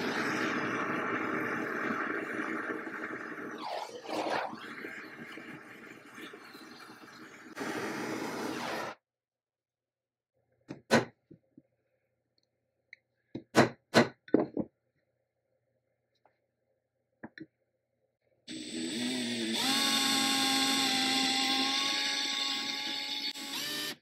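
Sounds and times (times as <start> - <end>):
electric drill boring into metal: 18.5 - 24.0.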